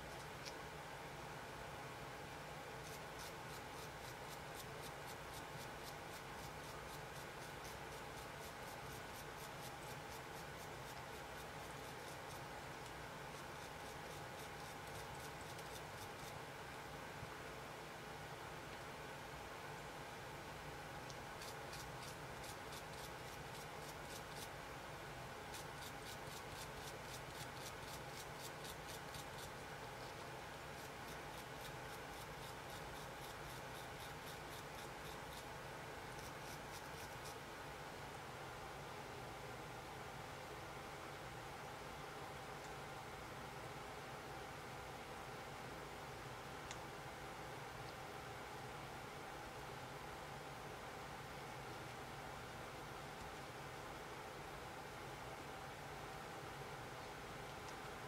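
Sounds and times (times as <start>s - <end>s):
small brush scrubbing metal: 25.5s - 35.5s, 36.1s - 37.4s.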